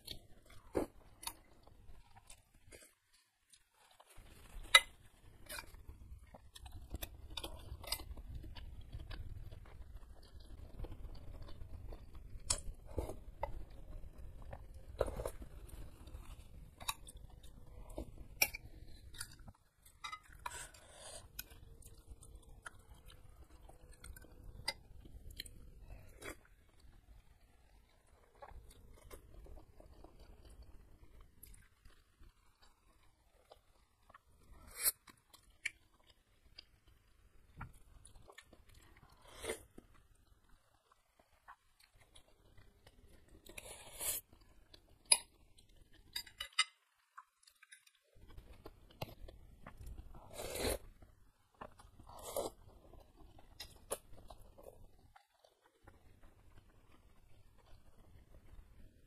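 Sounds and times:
chewing: 0.0 - 59.0
slurping noodles: 43.5 - 44.3, 50.2 - 50.9, 52.0 - 52.6.

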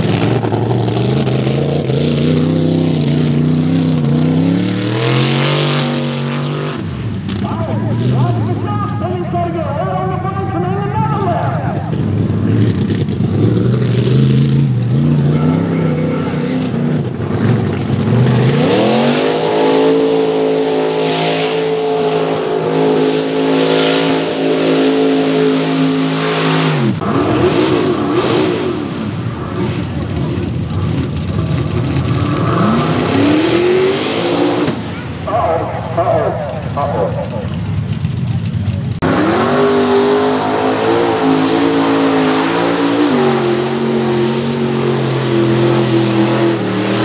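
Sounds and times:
second truck engine revving: 0.0 - 9.7, 11.2 - 37.7, 38.6 - 47.0
truck engine revving: 0.0 - 47.0.

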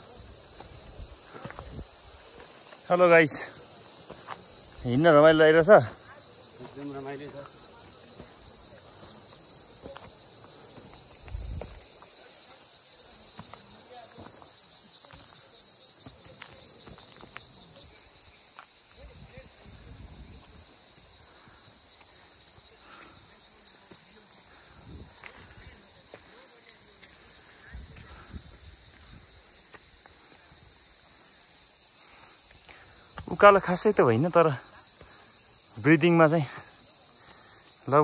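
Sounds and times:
footsteps: 0.0 - 5.0, 5.8 - 17.9, 18.5 - 31.2
insects chirring: 0.0 - 38.0.

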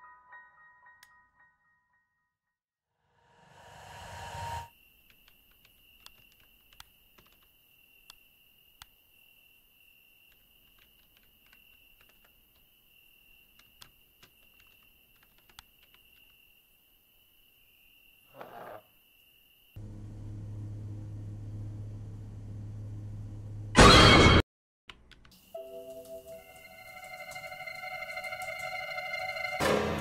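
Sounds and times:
laptop keys clicking: 5.1 - 7.5, 10.3 - 12.7, 13.4 - 16.3
high-pitched drone: 25.6 - 29.8.

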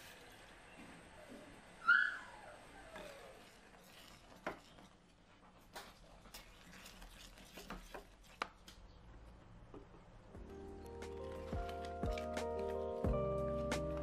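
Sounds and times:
spoon stirring oatmeal: 3.0 - 8.6.

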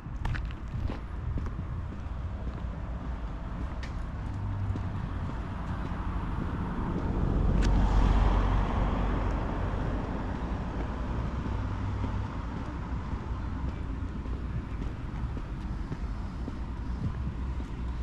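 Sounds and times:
low rumble of road noise: 0.0 - 18.0
vehicle passing: 1.1 - 18.0.

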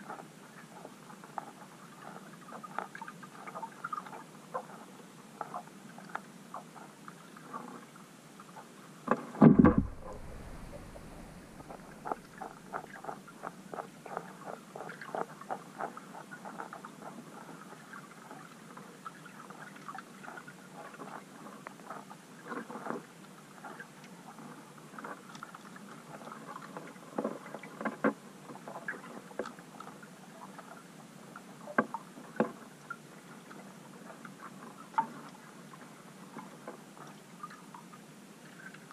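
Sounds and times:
small underwater clicks and ticks: 0.0 - 38.9
deep underwater thump: 9.4 - 12.8.

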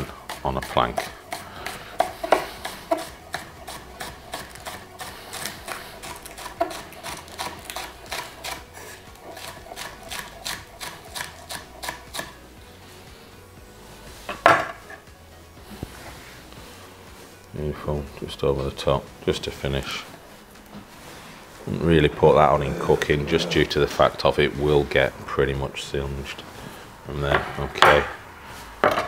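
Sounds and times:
knife chopping on wooden board: 0.2 - 12.4
knife laid down on board: 14.3 - 15.0.

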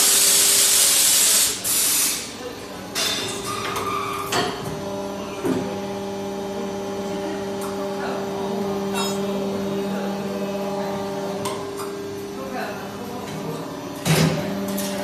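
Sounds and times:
machine mechanical hum: 0.0 - 15.0.

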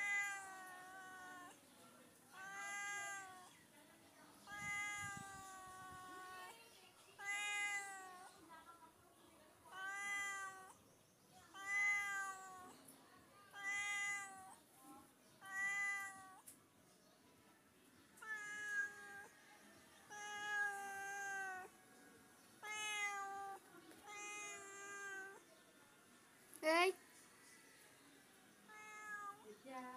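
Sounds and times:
cat meowing: 0.0 - 1.6, 2.3 - 3.5, 4.5 - 6.5, 7.2 - 8.3, 9.7 - 10.8, 11.5 - 12.8, 13.5 - 14.6, 15.4 - 16.5, 18.2 - 19.4, 20.1 - 21.7, 22.6 - 25.4, 28.7 - 29.5.

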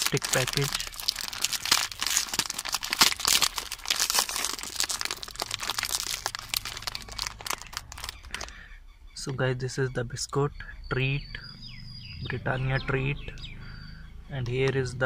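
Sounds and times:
plastic wrapper crinkling: 0.0 - 8.6.

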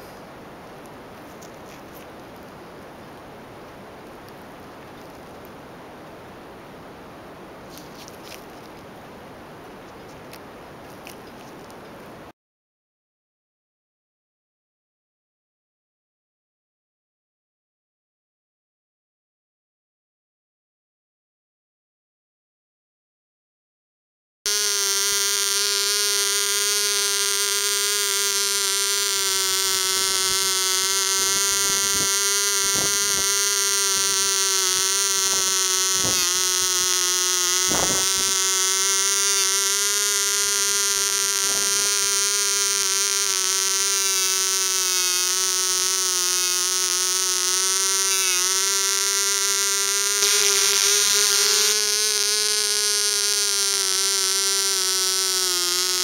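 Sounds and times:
model engine high-pitched buzz: 24.5 - 56.0.

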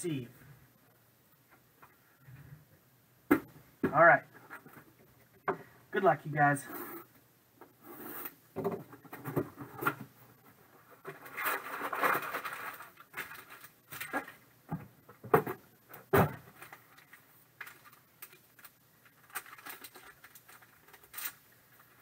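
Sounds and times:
plastic bags rustling: 11.0 - 14.4, 16.5 - 22.0.

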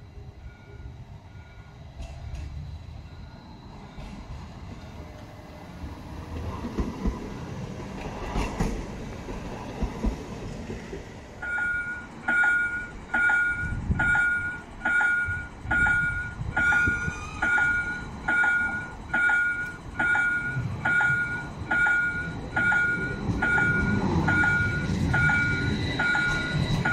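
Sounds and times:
tram rumbling on rails: 0.0 - 26.9
two-tone warning bell chime: 11.4 - 26.9.

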